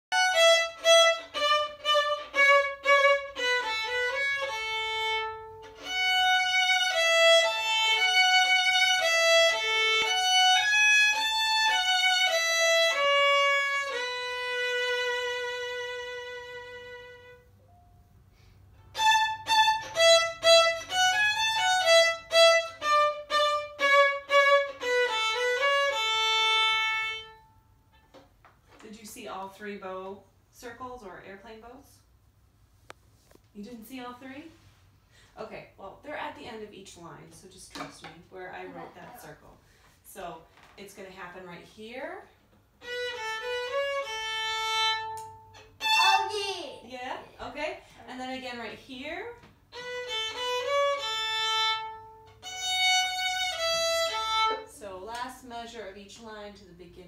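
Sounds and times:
solo violin melody: 0:00.1 - 0:17.6, 0:18.8 - 0:27.6, 0:42.8 - 0:46.3, 0:49.7 - 0:54.7.

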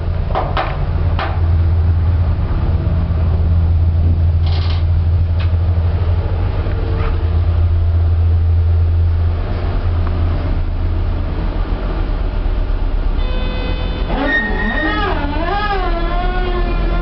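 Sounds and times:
lift machinery hum: 0:00.0 - 0:17.0.

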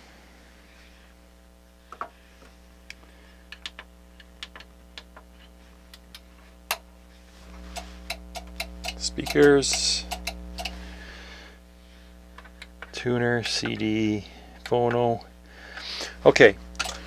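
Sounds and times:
mains hum: 0:00.0 - 0:17.0
button and relay clicks: 0:07.8 - 0:10.8.

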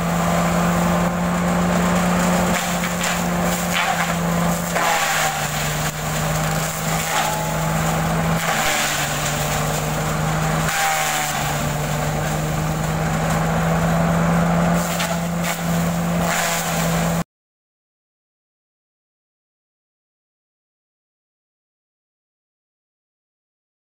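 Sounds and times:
dry fronds crackling and splintering: 0:00.0 - 0:17.2
tractor and shredder drone: 0:00.0 - 0:17.2.

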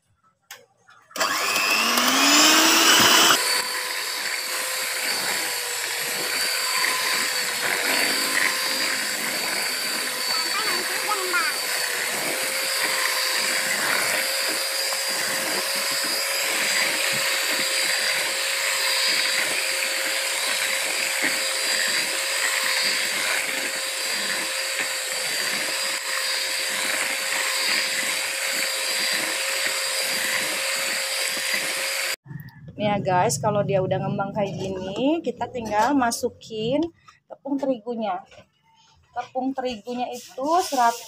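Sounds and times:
electric hand mixer whining: 0:01.2 - 0:32.2.

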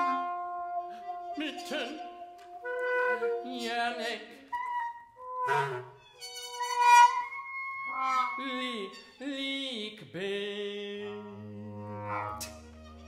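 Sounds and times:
trombone: 0:00.0 - 0:03.5, 0:11.6 - 0:13.0
trumpet: 0:00.0 - 0:09.2, 0:11.0 - 0:13.0
baritone voice singing: 0:03.2 - 0:04.5, 0:08.3 - 0:12.0.

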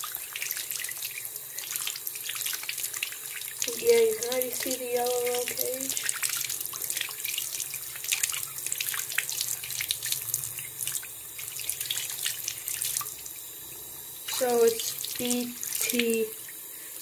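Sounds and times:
tap water splashing into sink: 0:00.0 - 0:13.4.

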